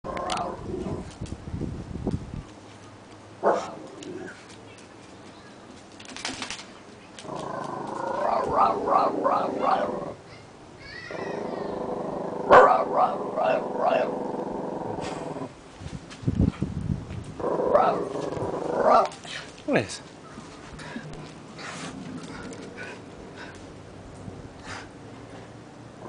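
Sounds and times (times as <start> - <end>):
dog growling: 0.0 - 1.0, 7.2 - 10.2, 11.1 - 15.5, 17.4 - 19.1.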